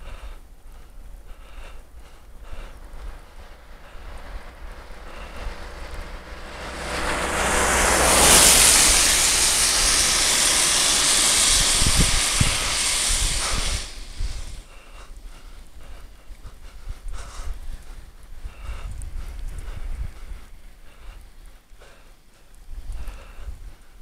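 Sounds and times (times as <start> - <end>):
car tyre hiss on wet road: 0.0 - 17.8.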